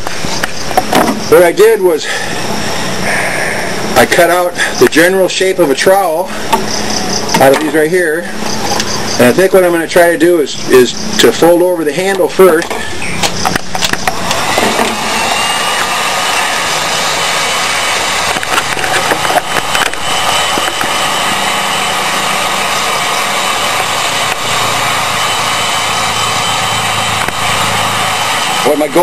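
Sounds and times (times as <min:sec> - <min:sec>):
heat gun blowing hot air: 0:11.9 - 0:29.0.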